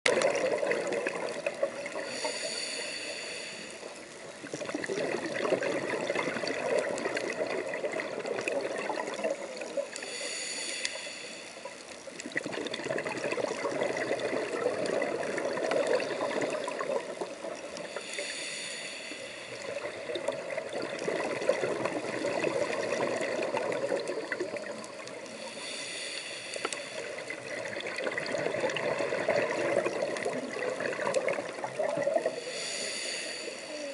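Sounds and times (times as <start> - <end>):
bubbling exhaled air: 0.1 - 33.9
regulator hissing inhale: 1.8 - 4.3, 9.1 - 12.2, 17.5 - 20.3, 24.9 - 27.6, 32.2 - 33.9.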